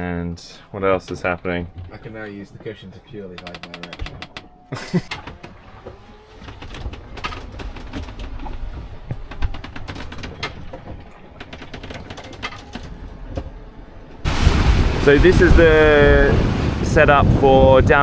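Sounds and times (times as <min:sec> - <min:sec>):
boat creaks and knocks: 0:00.8 - 0:14.8
water rumbling along hull: 0:00.8 - 0:18.0.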